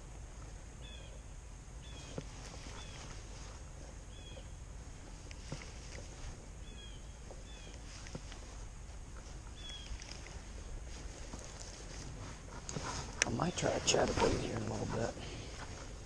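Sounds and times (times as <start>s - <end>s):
bird chirping: 0.8s - 3.3s, 4.0s - 4.6s, 6.6s - 8.0s, 9.5s - 10.4s.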